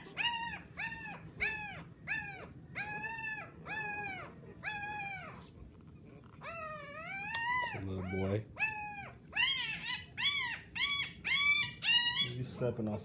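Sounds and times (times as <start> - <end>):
puppy squealing cries: 0.0 - 5.6, 6.4 - 12.6.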